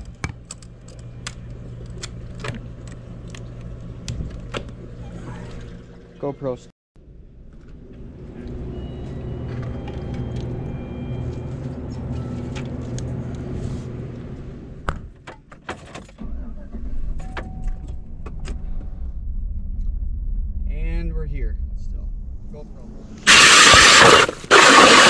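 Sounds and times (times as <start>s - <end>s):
electrical hum of drink coolers: 0.0s - 19.0s
car engine rumble: 7.0s - 24.9s.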